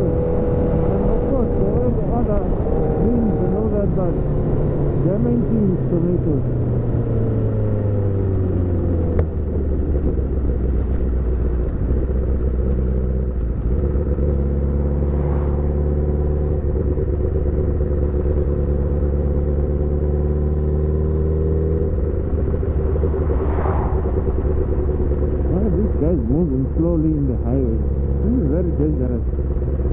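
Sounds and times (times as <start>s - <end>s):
motorcycle engine running: 0.0s - 29.9s.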